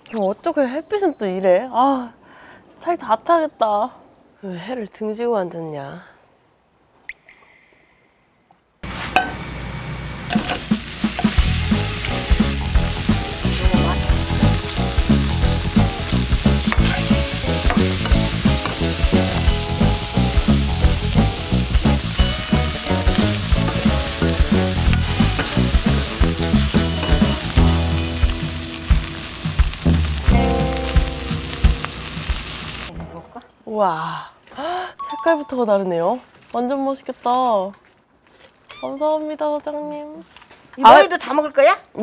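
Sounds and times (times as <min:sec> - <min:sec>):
prawns sizzling in a pan: 0:10.3 - 0:32.9.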